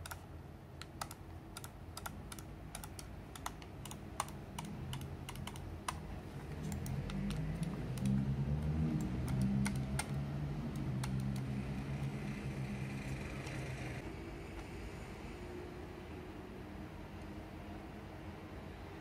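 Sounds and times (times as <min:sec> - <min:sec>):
sharp little clicks and taps: 0:00.0 - 0:00.2, 0:00.8 - 0:12.2.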